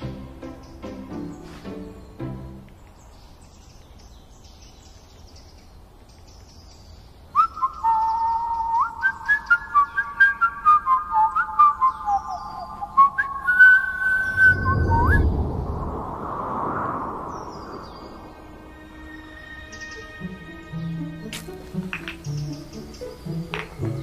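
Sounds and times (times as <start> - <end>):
person whistling a tune: 7.4 - 15.3.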